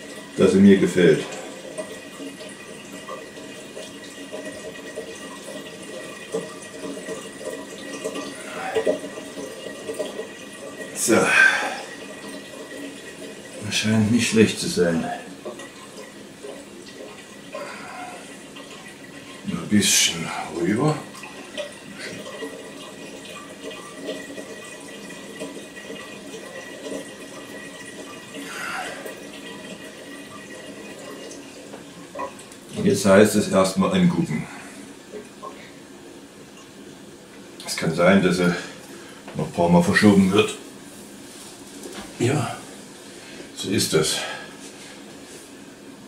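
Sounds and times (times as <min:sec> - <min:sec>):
water splashing and trickling: 0:00.0 - 0:35.8.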